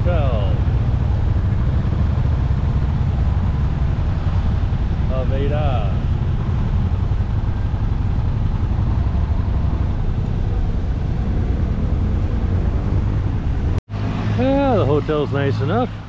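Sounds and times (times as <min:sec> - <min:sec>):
motorcycle engine idling: 0:00.0 - 0:11.1.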